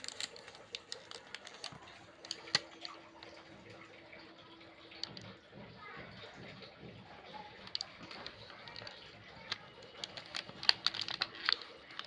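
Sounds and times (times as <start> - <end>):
metal cans clicking: 0.0 - 2.9, 7.6 - 12.0
plastic shrink-wrap crackling: 0.0 - 3.4, 7.4 - 12.0.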